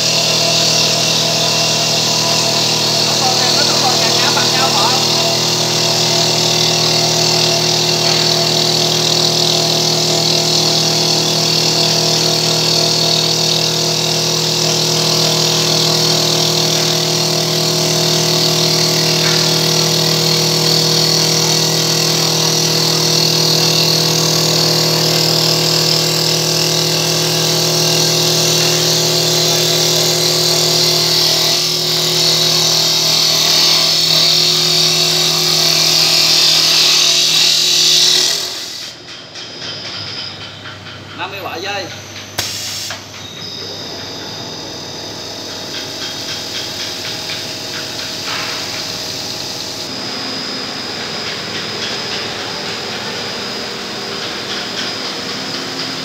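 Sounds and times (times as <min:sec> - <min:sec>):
wood cutting hiss: 0:00.0 - 0:39.0, 0:42.4 - 0:43.2
lathe motor hum: 0:00.0 - 0:39.1, 0:41.0 - 0:56.0.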